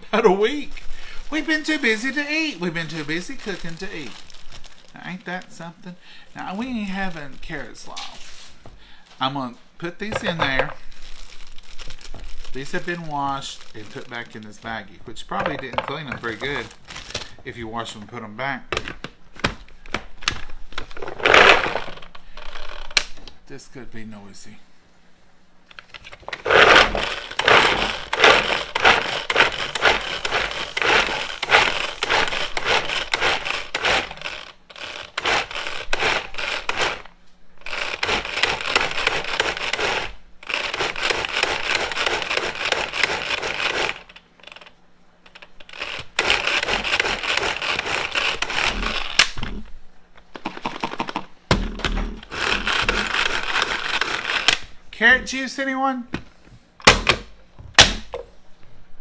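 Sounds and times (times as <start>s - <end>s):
food chopper clattering: 21.0s - 22.0s, 26.2s - 44.7s, 45.3s - 49.6s, 50.4s - 54.6s.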